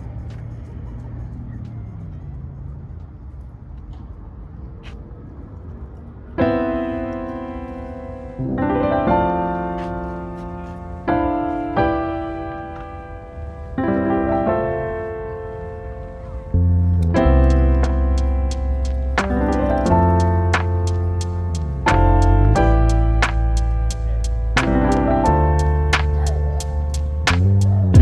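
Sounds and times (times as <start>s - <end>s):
slow piano chords: 6.3s - 28.0s.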